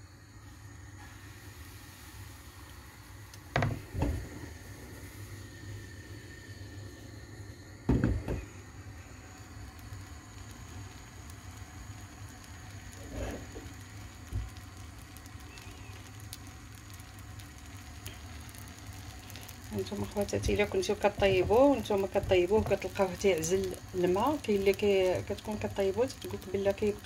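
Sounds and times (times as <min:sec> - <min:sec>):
gas stove burner rumble: 0:00.0 - 0:27.0
pan thudding onto grate: 0:07.9 - 0:08.4.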